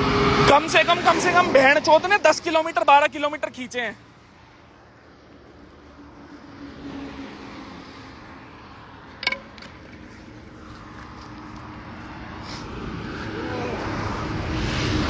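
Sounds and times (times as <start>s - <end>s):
vehicle engine and road noise: 0.0s - 15.0s
sharp click: 9.2s - 10.0s.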